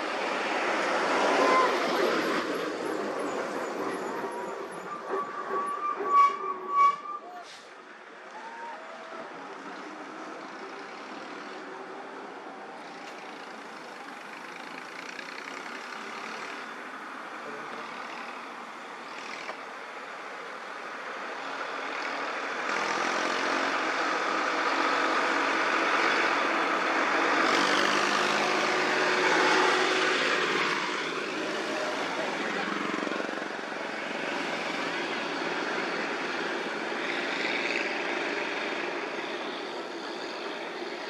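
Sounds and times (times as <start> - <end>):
tractor diesel engine passing: 0.0 - 8.0, 21.4 - 41.0
road traffic engines: 0.0 - 41.0.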